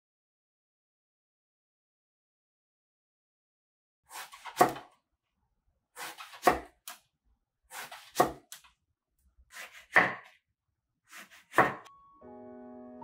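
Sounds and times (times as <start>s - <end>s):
knife slicing eggplant: 4.1s - 4.9s, 6.0s - 7.0s, 7.7s - 8.6s, 9.5s - 10.3s, 11.1s - 11.9s.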